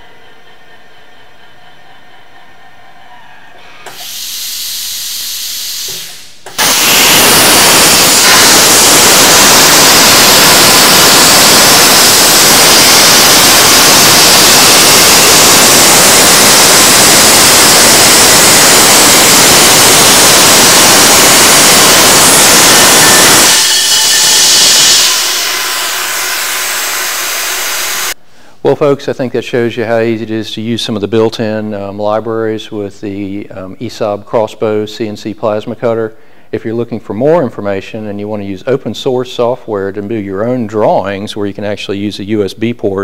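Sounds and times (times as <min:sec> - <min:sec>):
plasma cutter arc hissing: 0:03.8 - 0:28.2.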